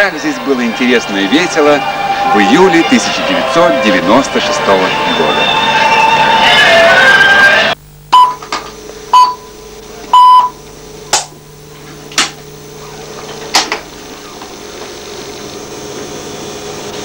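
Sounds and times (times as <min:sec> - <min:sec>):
electrical hum: 0:00.0 - 0:17.0
radio time signal pips: 0:12.4 - 0:15.8.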